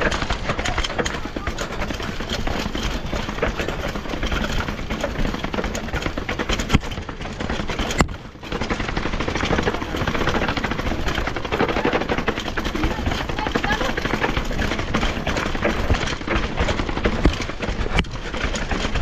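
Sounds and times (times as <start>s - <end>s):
mountain bike rattling: 0.0s - 19.0s.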